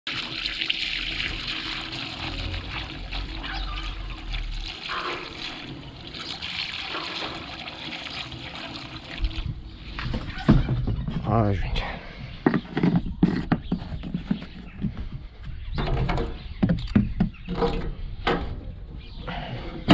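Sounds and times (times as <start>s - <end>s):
liquid pouring through funnel: 0.1s - 10.5s.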